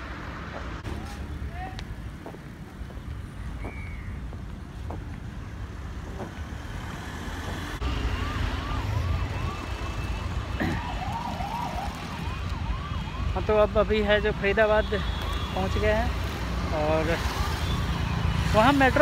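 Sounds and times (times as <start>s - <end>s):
road traffic rumbling: 0.0s - 19.0s
vehicle siren: 7.7s - 19.0s.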